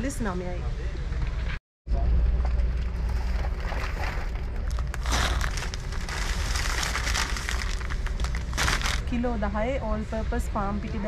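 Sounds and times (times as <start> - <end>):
low store background rumble: 0.0 - 11.0
packaging crinkling: 4.6 - 9.1.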